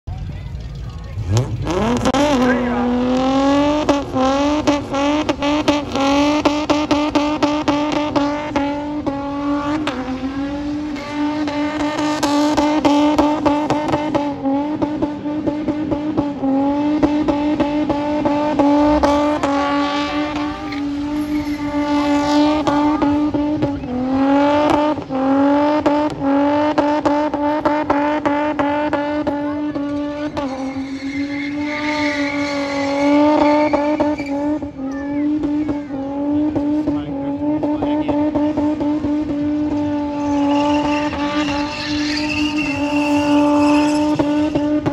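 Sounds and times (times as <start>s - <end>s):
car engine at high revs: 0.0s - 44.9s
tyres squealing: 18.9s - 23.9s, 29.6s - 36.0s, 40.2s - 44.6s.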